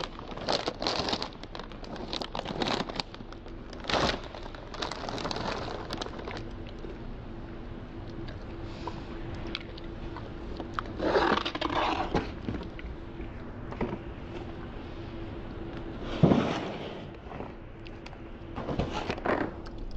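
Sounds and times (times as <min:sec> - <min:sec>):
plastic bag crinkling: 0:00.0 - 0:07.0
plastic tub sliding on table: 0:16.0 - 0:17.5.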